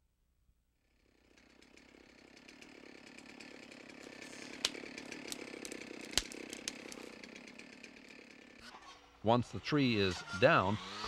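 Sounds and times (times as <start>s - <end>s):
brush saw engine running: 0.9s - 11.0s
wood snapping: 2.4s - 8.3s.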